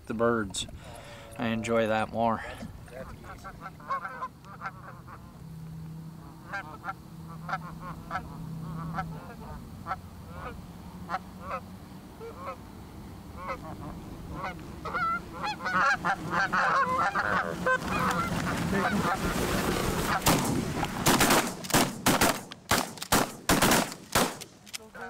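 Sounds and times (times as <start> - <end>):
canada geese honking: 0.6 - 5.5, 6.1 - 12.7, 13.3 - 20.3
shotgun blasts: 20.2 - 24.6.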